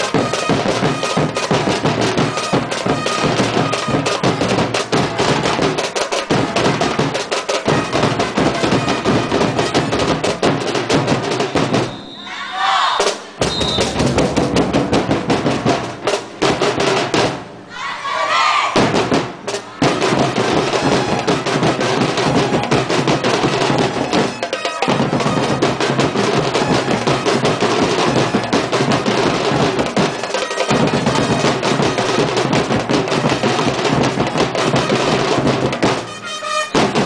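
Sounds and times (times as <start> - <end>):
fast drum and percussion music: 0.0 - 12.2, 13.0 - 17.6, 18.7 - 37.0.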